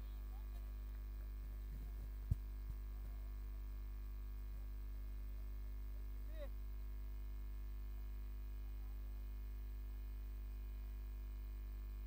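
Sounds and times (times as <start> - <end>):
mains hum: 0.0 - 12.0.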